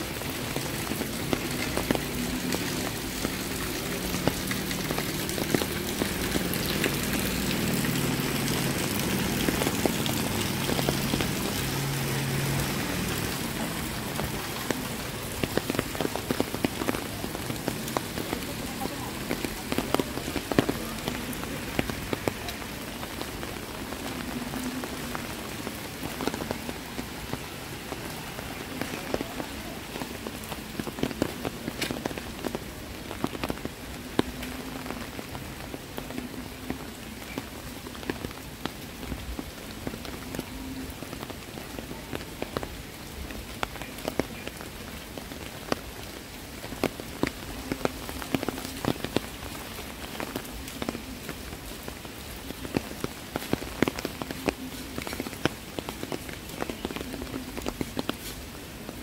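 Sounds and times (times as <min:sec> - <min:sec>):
heavy rain falling: 0:00.0 - 0:59.0
sharp raindrop hits: 0:00.0 - 0:59.0.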